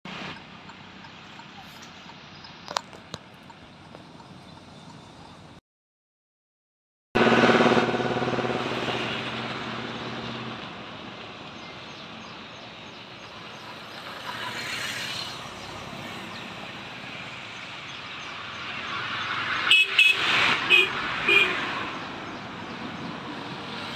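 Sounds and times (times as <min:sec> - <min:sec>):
outdoor background noise: 0:00.1 - 0:05.6, 0:07.2 - 0:23.9
vehicle engine humming: 0:00.1 - 0:05.6, 0:07.2 - 0:23.9.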